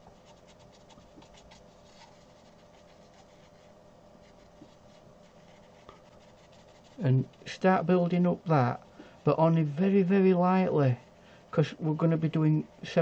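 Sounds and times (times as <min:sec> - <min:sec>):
brush strokes on rough paper: 0:00.0 - 0:07.5.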